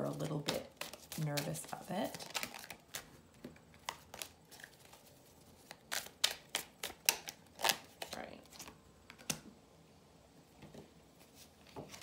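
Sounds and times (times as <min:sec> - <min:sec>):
cards being shuffled: 0:00.0 - 0:09.4.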